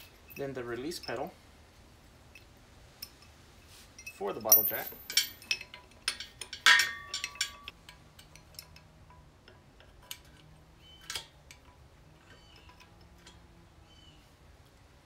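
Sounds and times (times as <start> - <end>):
small metal clicks and taps: 5.1 - 13.5.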